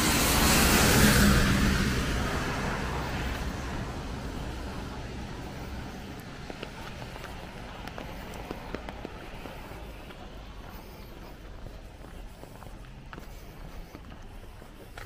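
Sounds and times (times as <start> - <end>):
road vehicle passing: 0.0 - 15.0
light footstep clicks: 4.3 - 15.0.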